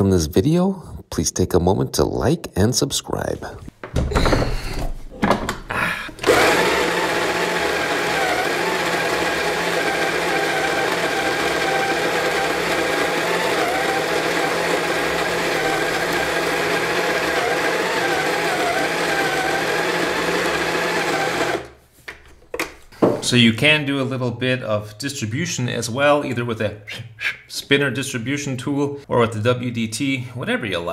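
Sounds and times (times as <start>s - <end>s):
coffee grinder whining: 6.2s - 21.8s.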